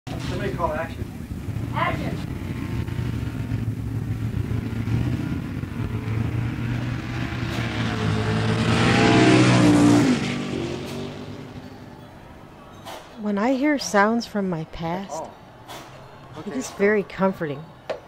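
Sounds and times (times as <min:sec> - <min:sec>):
race car engine passing: 0:00.1 - 0:17.8
steady low rumble: 0:00.3 - 0:08.7.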